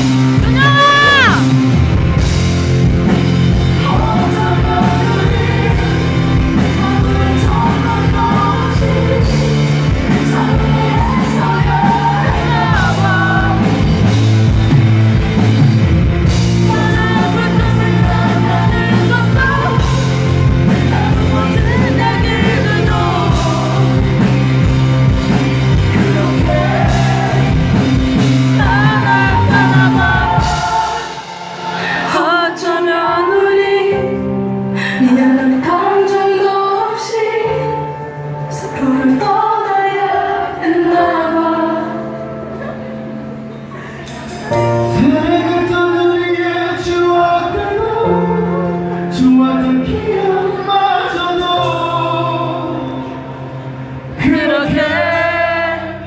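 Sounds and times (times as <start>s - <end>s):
man singing lead vocal: 0.0s - 1.7s, 3.0s - 14.7s, 16.2s - 34.4s, 44.4s - 53.4s, 54.0s - 56.0s
live rock band playing: 0.0s - 56.0s.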